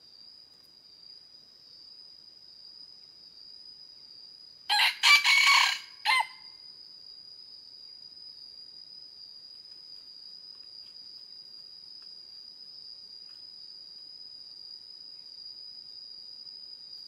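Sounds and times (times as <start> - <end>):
rooster crowing: 4.7 - 6.5
high-pitched insect drone: 4.7 - 6.8.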